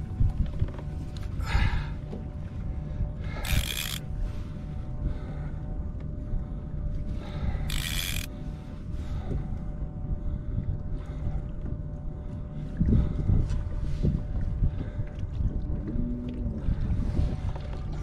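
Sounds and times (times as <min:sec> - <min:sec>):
fishing reel under heavy load: 0:03.2 - 0:04.4, 0:07.2 - 0:08.5
loud reel rasp: 0:03.4 - 0:04.0, 0:07.7 - 0:08.3.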